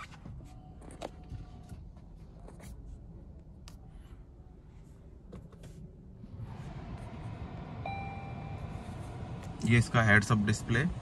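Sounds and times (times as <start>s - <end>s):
car cabin hum: 4.7s - 11.0s.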